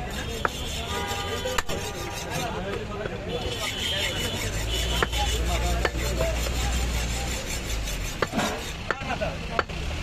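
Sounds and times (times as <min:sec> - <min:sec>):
cleaver chopping meat on wood: 0:00.2 - 0:01.8, 0:04.4 - 0:07.2, 0:07.8 - 0:09.8.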